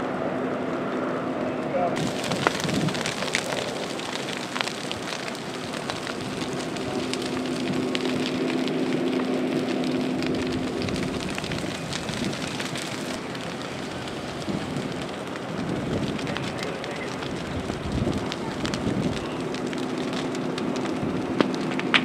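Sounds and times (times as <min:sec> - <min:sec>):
burning brush crackling: 0:00.0 - 0:22.0.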